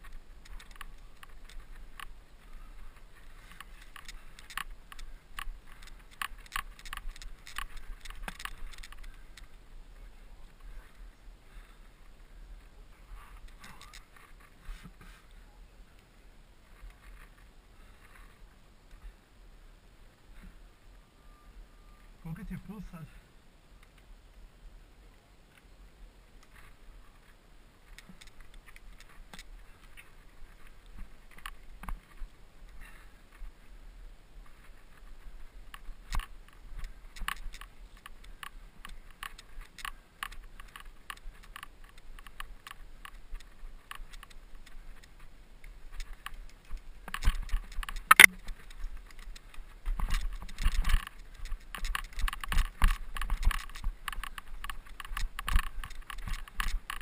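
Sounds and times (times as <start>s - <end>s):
mountain bike rattling: 0.0s - 11.8s, 13.2s - 14.8s, 26.5s - 33.8s, 34.4s - 57.0s.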